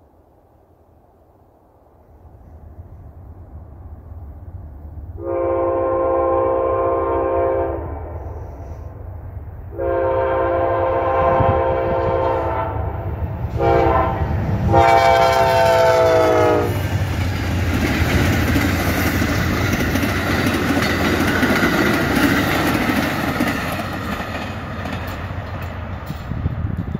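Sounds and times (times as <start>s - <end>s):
train horn blasts: 5.2s - 8.9s, 9.7s - 16.9s
train wheels rushing: 9.8s - 26.9s.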